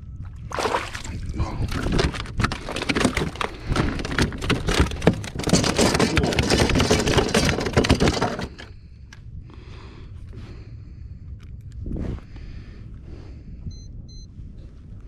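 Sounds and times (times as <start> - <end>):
fish flopping on plastic deck: 0.5 - 8.6.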